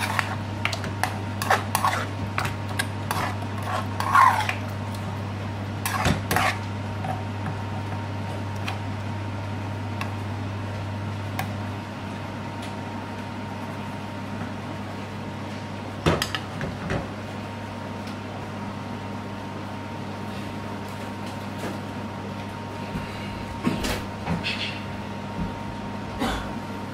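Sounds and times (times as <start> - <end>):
steady low hum: 0.0 - 26.9
metal spoon scraping frying pan: 1.0 - 4.6, 5.8 - 6.6.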